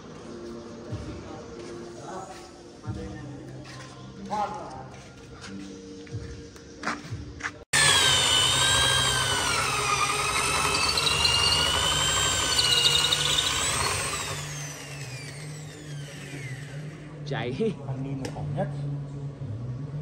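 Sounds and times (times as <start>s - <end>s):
electric drill boring into wood: 7.8s - 17.1s.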